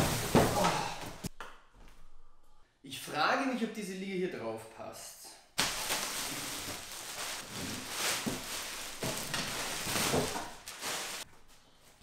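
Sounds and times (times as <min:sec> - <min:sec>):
plastic wrapping crinkling: 0:05.6 - 0:11.3.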